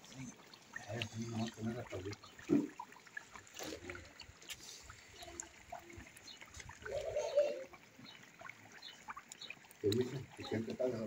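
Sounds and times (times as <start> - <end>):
meat bubbling in hot fat: 0.0 - 11.0
small pops and crackles: 2.1 - 6.9, 8.4 - 10.7.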